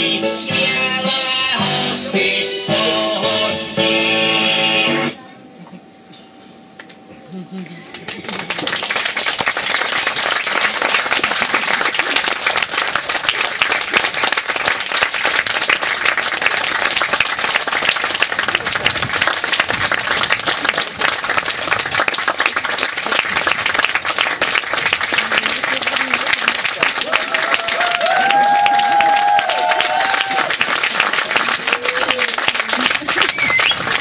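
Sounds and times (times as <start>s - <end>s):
audience applauding: 7.9s - 34.0s.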